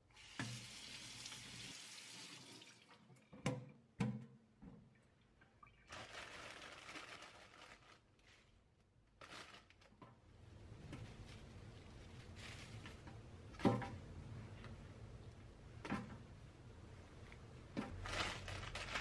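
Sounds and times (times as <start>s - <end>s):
tap running into sink: 0.3s - 1.7s.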